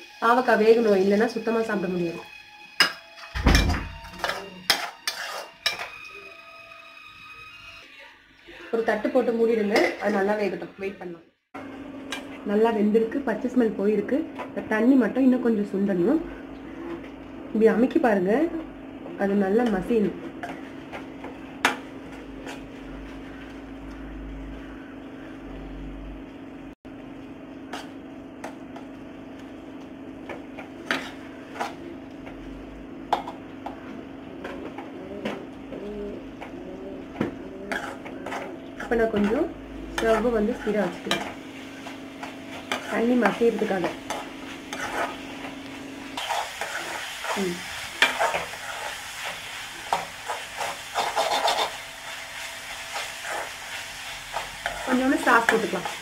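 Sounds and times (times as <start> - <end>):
light sizzle: 0.0 - 56.0
spatula scraping a metal pan: 4.1 - 6.1, 30.8 - 31.9, 37.2 - 39.4, 40.0 - 45.5, 46.1 - 51.8, 52.8 - 56.0
steady low hum: 18.2 - 48.8.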